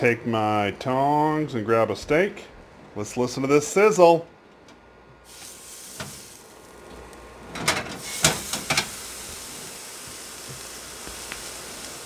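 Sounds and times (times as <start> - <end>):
steak sizzling in a pan: 5.2 - 6.9, 8.0 - 12.0.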